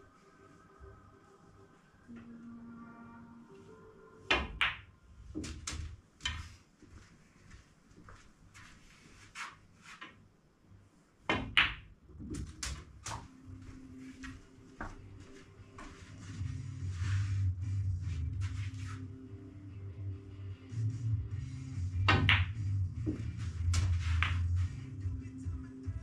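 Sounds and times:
faint background music: 0:00.0 - 0:09.2, 0:12.4 - 0:26.0
snooker balls clicking: 0:04.4 - 0:06.6, 0:22.1 - 0:24.5.

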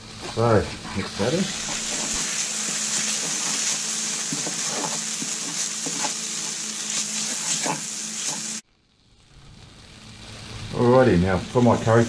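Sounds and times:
onions sizzling in oil: 0:00.0 - 0:12.0
wooden spoon stirring and scraping: 0:00.1 - 0:08.6.

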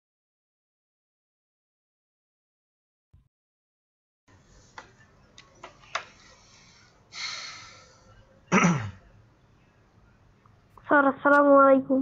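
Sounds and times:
person coughing: 0:08.5 - 0:09.0.

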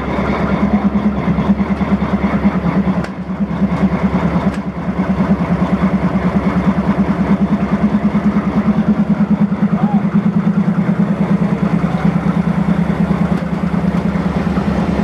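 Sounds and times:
locomotive diesel engine idling: 0:00.0 - 0:15.0.

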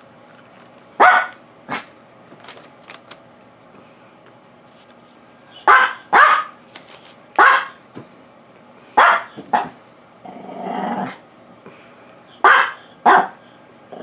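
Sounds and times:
dog barking: 0:01.0 - 0:01.8, 0:05.6 - 0:06.6, 0:07.4 - 0:07.8, 0:09.0 - 0:09.8, 0:12.4 - 0:13.4.

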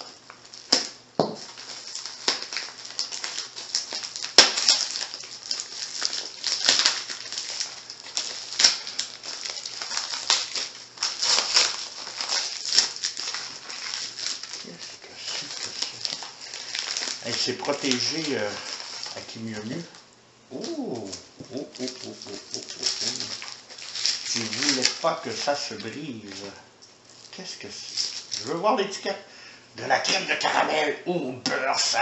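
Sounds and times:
plastic and paper crinkling and tearing: 0:00.0 - 0:29.2, 0:31.5 - 0:32.0.

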